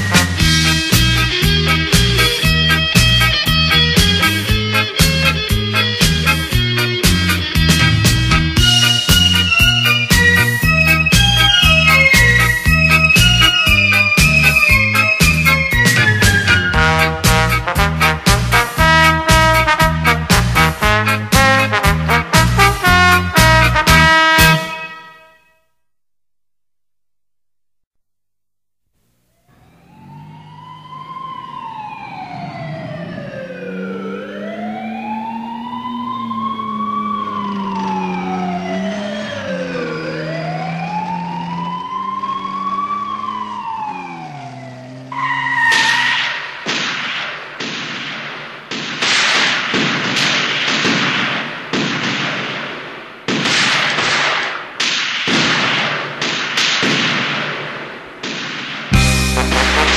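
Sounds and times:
siren wailing: 0.0 - 17.9, 29.3 - 46.7
loud percussive music hits: 6.0 - 10.4, 58.9 - 59.9.

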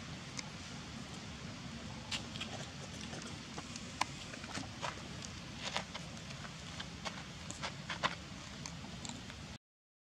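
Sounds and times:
steady low rumble: 0.0 - 9.6.

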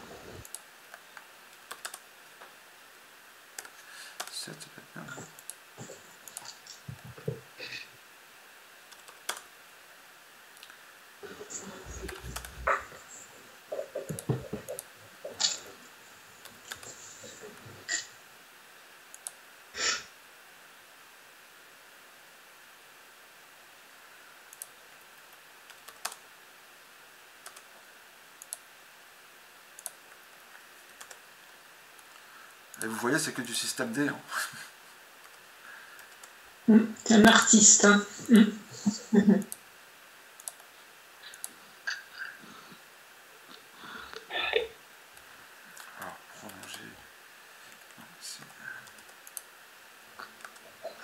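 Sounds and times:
faint steady hiss: 0.0 - 51.0
mouse clicks: 0.4 - 2.0, 3.6 - 4.3, 19.1 - 19.4, 28.4 - 28.7, 29.8 - 30.0, 30.9 - 31.2, 40.4 - 40.7
computer keyboard keystrokes: 1.6 - 2.0, 3.6 - 4.4, 8.9 - 9.4, 25.7 - 26.2, 27.4 - 27.7, 30.9 - 31.2, 40.4 - 40.7
keyboard keystrokes: 1.6 - 2.0, 25.8 - 26.2.

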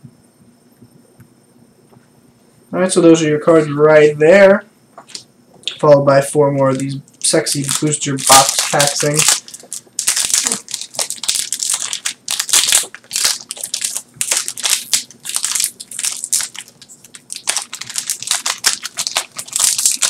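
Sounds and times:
plastic and foil wrapping crinkling: 6.6 - 20.0.

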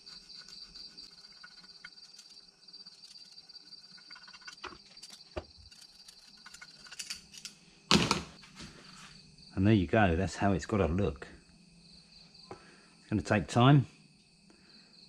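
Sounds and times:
screwdriver scraping metal: 0.0 - 7.5
crickets chirping: 0.0 - 15.0.

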